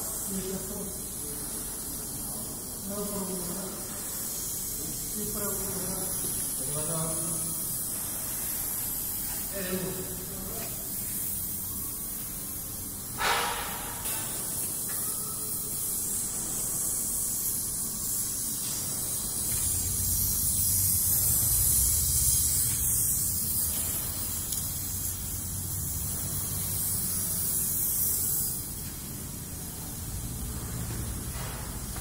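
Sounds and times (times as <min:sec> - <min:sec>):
torch flame hissing: 0:15.6 - 0:28.8.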